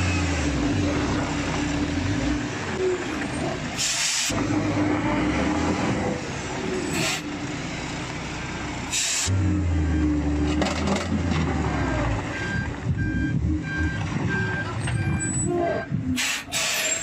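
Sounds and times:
diesel truck engine running: 0.0s - 17.0s
air brake hisses: 3.8s - 4.3s, 7.0s - 7.2s, 8.9s - 9.3s, 16.2s - 17.0s.

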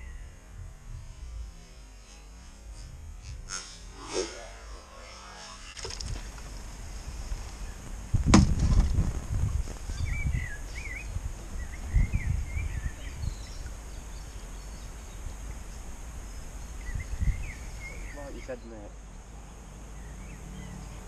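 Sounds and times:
wind buffeting microphone: 5.8s - 14.2s, 15.3s - 18.1s
sharp knock: 8.3s - 8.9s
small bird chirping: 9.8s - 19.2s.

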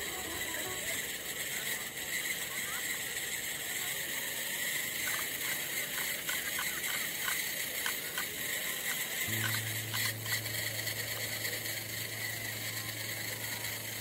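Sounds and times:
electric drive whirring: 0.0s - 14.0s
low steady hum: 9.2s - 14.0s.

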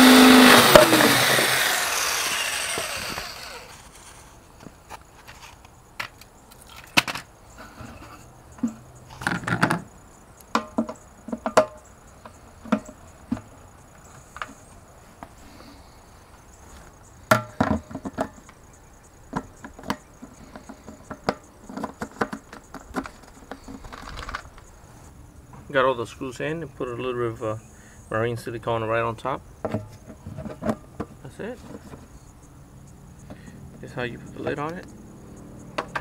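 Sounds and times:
plastic parts knocking: 19.3s - 24.4s.

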